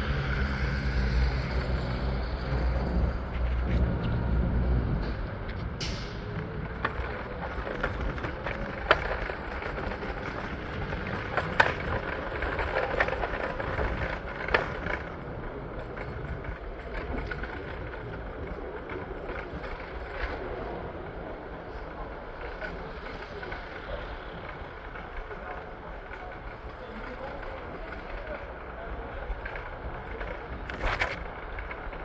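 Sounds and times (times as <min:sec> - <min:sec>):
city traffic rumble: 0:00.0 - 0:32.0.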